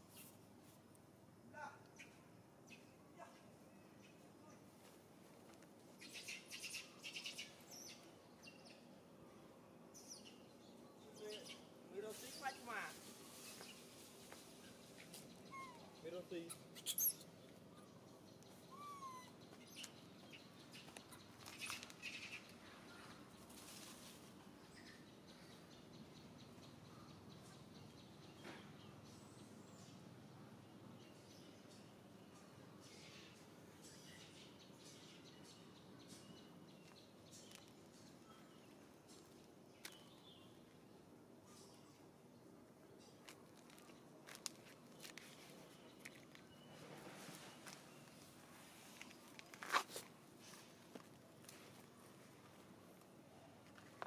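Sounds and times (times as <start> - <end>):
faint outdoor hum: 0.0 - 54.0.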